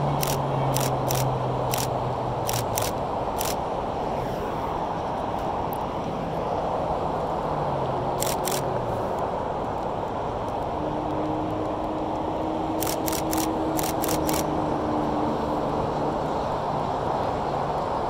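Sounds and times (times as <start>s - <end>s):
camera shutter clicks: 0.2s - 3.6s, 8.2s - 8.7s, 12.8s - 14.5s.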